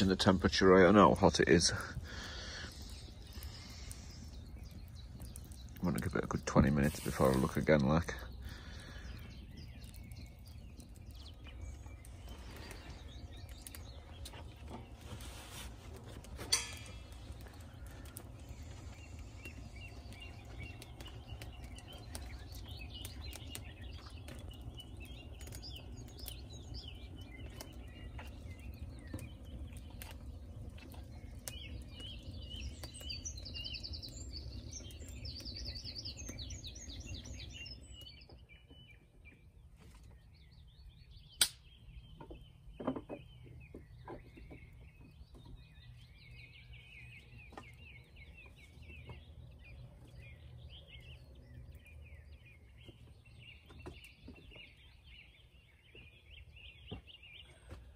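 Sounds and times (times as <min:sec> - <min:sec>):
small birds chirping: 0:00.0 - 0:57.9
wood fire crackling and popping: 0:00.0 - 0:57.9
sharp snap: 0:41.4 - 0:41.7.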